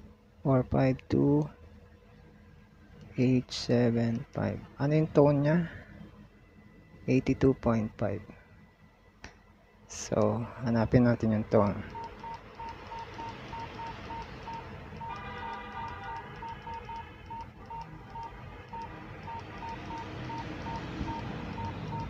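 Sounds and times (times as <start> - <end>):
radio key beeps: 11.6 - 22.0.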